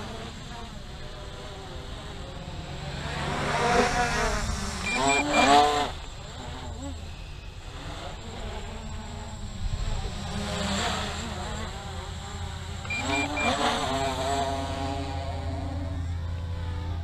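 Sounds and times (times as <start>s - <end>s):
quadcopter propellers buzzing: 0.0s - 17.0s
short high beeps: 4.8s - 5.6s, 12.8s - 14.3s.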